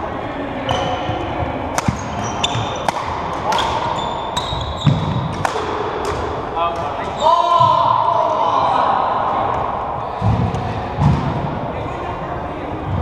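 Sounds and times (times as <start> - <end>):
sneakers squeaking on wooden floor: 0.7 - 2.9, 3.5 - 5.4
rackets striking shuttlecock: 1.7 - 4.0, 4.8 - 7.1.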